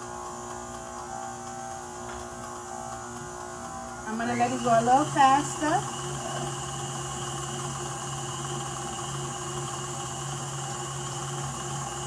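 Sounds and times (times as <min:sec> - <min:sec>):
stand mixer motor humming: 0:00.0 - 0:12.0.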